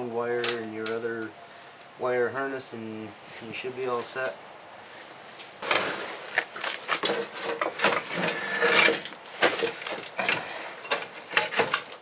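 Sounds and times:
metal tank scraping and clunking: 5.6s - 12.0s.

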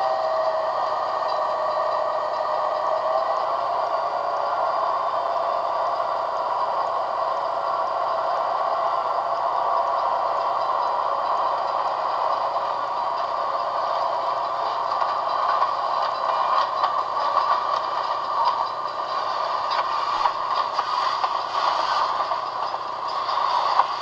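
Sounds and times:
mechanical clatter and hiss: 5.2s - 24.0s.

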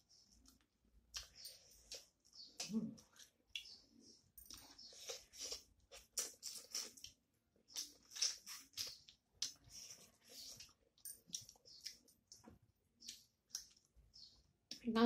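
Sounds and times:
chewing and lip-smacking: 0.2s - 3.8s, 4.4s - 14.0s.

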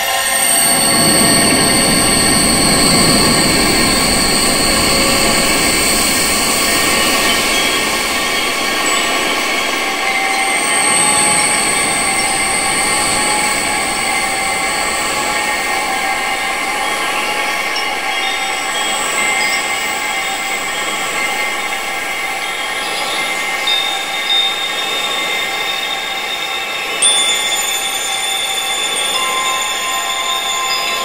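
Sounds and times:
high-pitched whistling tones: 0.0s - 31.0s
wind rushing in gusts: 0.1s - 27.0s.

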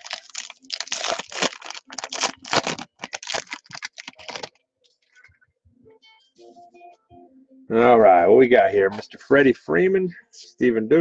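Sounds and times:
foil wrapper tearing and crinkling: 0.0s - 4.6s.

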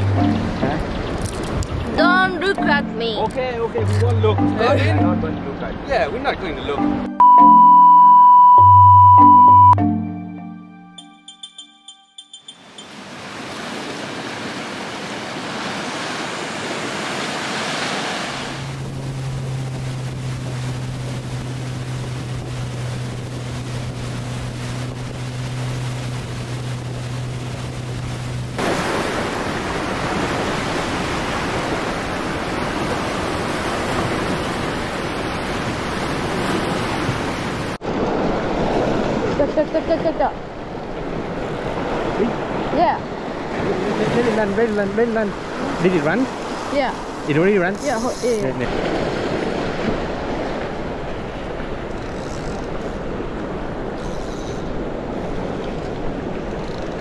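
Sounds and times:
outboard motor droning: 0.0s - 1.2s, 17.6s - 39.8s, 40.5s - 57.0s
rushing water: 0.0s - 7.0s, 12.5s - 57.0s
wind: 0.0s - 57.0s
white-water rapids roaring: 12.8s - 40.0s.

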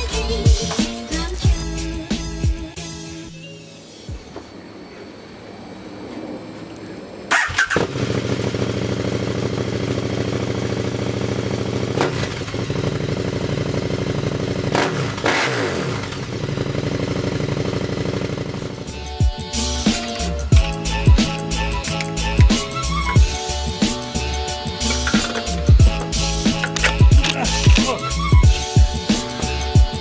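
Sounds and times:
motorcycle engine starting: 7.2s - 30.0s
motorcycle engine idling: 7.3s - 19.4s.

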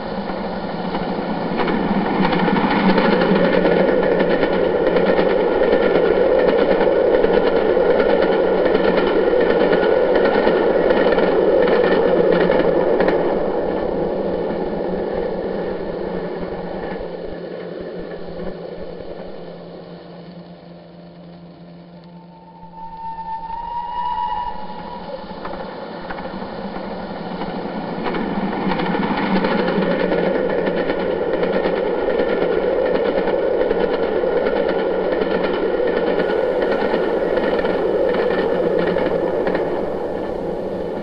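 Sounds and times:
wheels clicking over rails: 25.3s - 41.0s.

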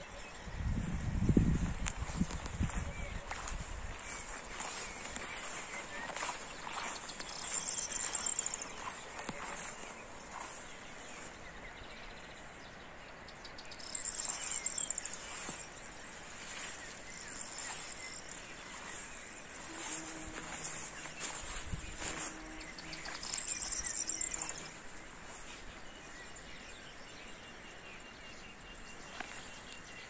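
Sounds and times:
insects chirring: 4.1s - 10.6s, 13.8s - 25.4s.

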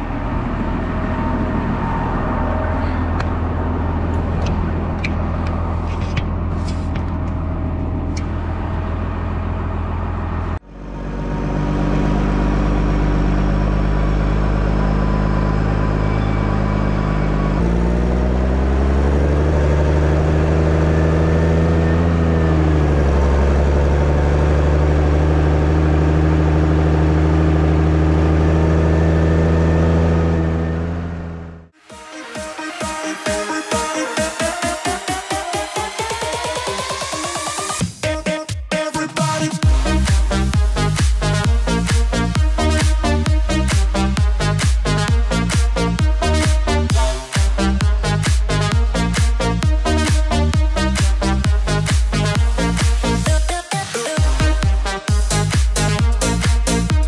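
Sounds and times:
tractor engine running: 0.0s - 31.8s, 39.6s - 57.0s.

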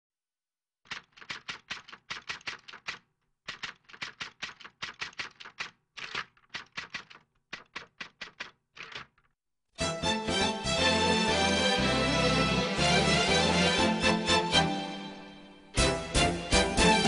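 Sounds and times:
typewriter key clicks: 0.9s - 9.3s.

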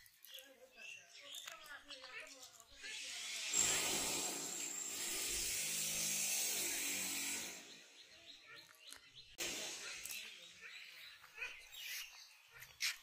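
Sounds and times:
small motor humming: 2.8s - 7.8s.

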